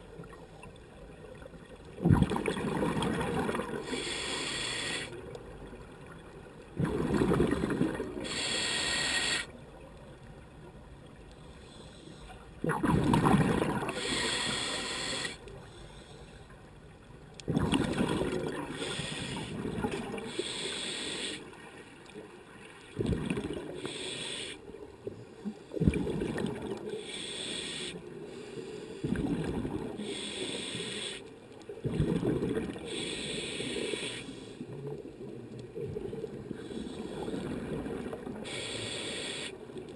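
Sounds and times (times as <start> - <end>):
exhaled bubbles gushing: 1.9 - 3.9, 6.8 - 8.2, 12.6 - 14.0, 17.5 - 18.8, 22.9 - 23.8, 25.8 - 26.9, 29.1 - 30.0, 31.8 - 32.9, 37.3 - 38.4
regulator breathing hiss: 3.8 - 5.2, 8.2 - 9.5, 14.0 - 16.4, 18.8 - 19.6, 20.3 - 21.5, 23.8 - 24.6, 27.0 - 29.0, 30.0 - 31.3, 32.8 - 34.6, 38.4 - 39.7.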